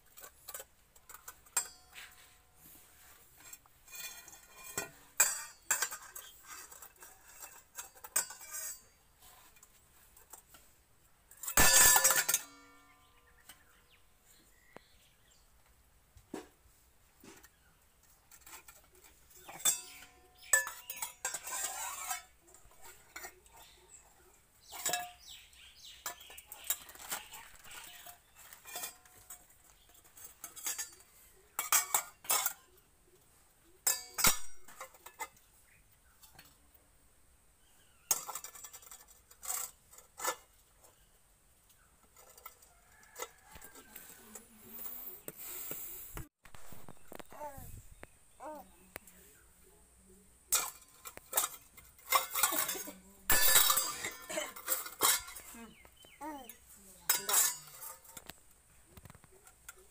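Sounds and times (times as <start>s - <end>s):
metal bowls and spoon clanking: 0.0s - 10.7s, 11.3s - 13.9s, 17.2s - 36.7s, 37.8s - 41.1s, 41.7s - 45.6s, 50.5s - 58.4s.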